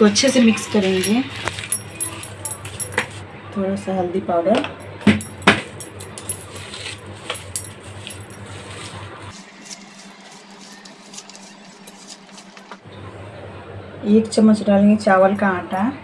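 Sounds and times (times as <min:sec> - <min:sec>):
bangles clinking: 0:00.6 - 0:03.2, 0:04.8 - 0:09.2.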